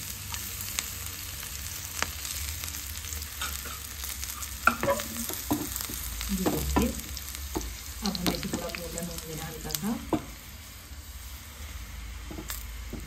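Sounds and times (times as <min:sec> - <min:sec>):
garlic sizzling in oil: 0:00.0 - 0:13.0
spoon scraping a pan: 0:04.6 - 0:05.7.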